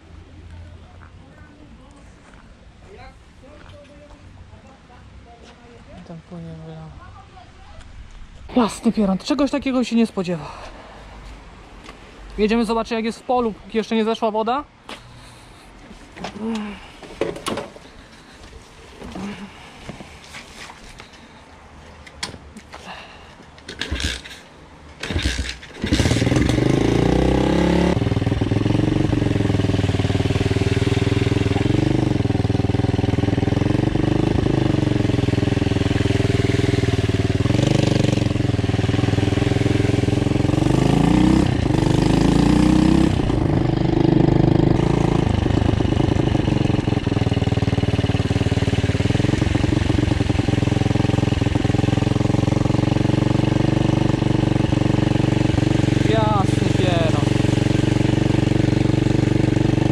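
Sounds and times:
motorbike engine revving: 23.7 - 24.4, 25.0 - 59.9.

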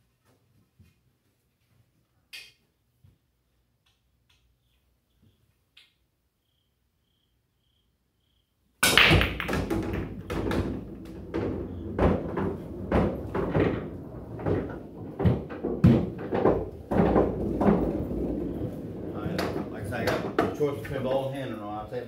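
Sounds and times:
cue ball cracking into rack: 8.8 - 20.6
pool balls knocking: 8.8 - 21.3
balls rumbling down return channel: 8.8 - 21.9.

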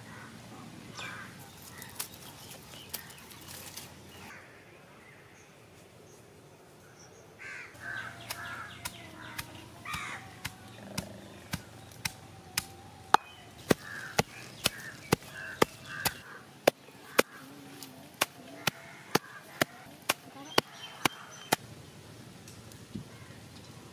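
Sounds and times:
crows cawing: 0.0 - 0.4, 1.0 - 2.0, 7.4 - 11.6, 13.6 - 21.4.

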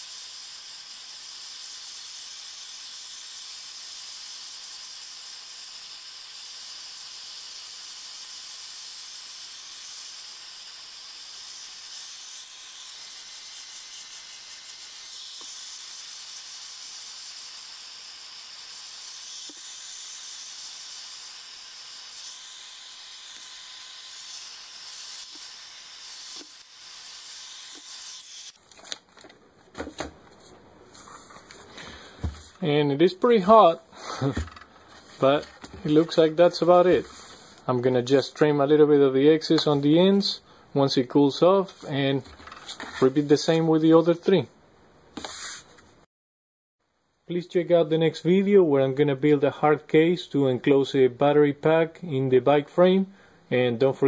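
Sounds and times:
heat gun blowing hot air: 0.0 - 28.6, 33.5 - 37.7.

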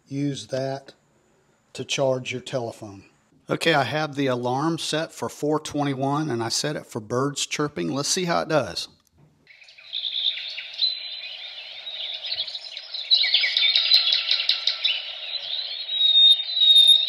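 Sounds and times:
alarm clock birdsong tone: 9.5 - 17.0.

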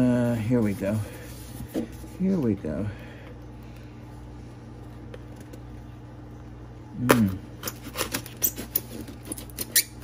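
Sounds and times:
foam box squeaking: 7.7 - 10.0.

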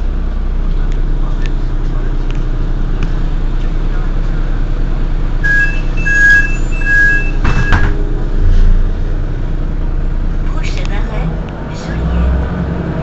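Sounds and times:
bus engine idling: 0.0 - 13.0
two-tone door warning beeps: 5.4 - 8.0.

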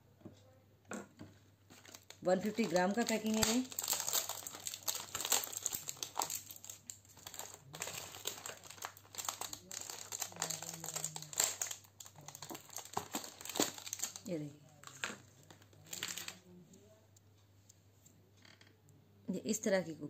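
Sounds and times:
plastic tub crinkling and crackling: 1.0 - 16.5.

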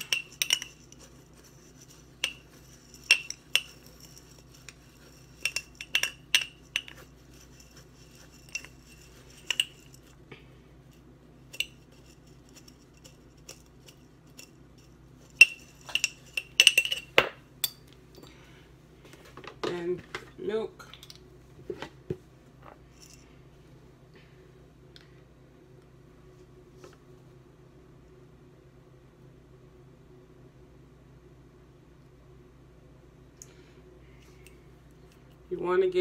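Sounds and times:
metal spoon clinking in glass jar: 0.0 - 10.1, 11.5 - 17.8.

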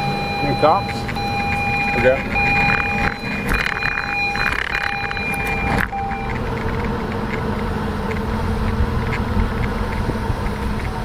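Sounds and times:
electronic buzzer-like tone: 0.0 - 8.3
road rumble: 0.0 - 11.0
wind: 0.0 - 11.0.

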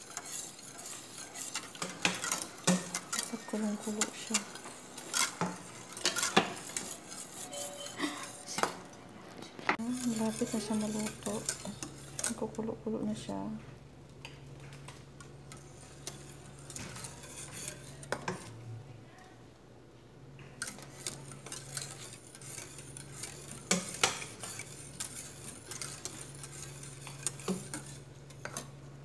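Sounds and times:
whisk clinking against pot: 0.0 - 8.7, 9.8 - 12.5, 15.5 - 18.5, 20.6 - 28.7
steady low hum: 0.0 - 29.0.

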